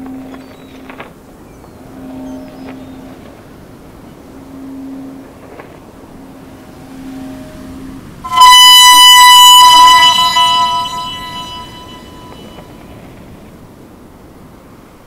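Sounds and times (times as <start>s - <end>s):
bright tone with overtones: 8.3s - 12.7s.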